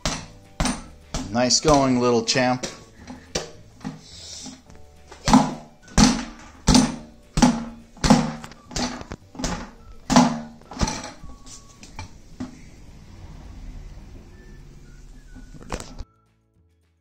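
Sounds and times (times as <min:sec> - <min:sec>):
gloves punching inflatable bag: 0:00.0 - 0:11.0.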